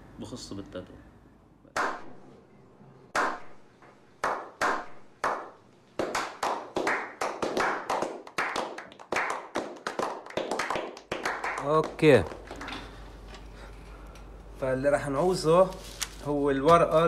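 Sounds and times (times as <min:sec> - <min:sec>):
group slow-clapping: 0:04.2 - 0:13.2.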